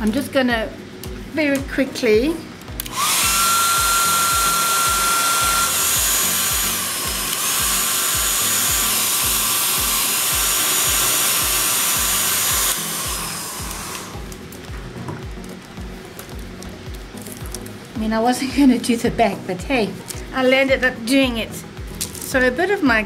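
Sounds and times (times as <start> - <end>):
background music: 0.0 - 23.0
heat tool blowing air: 2.7 - 15.0.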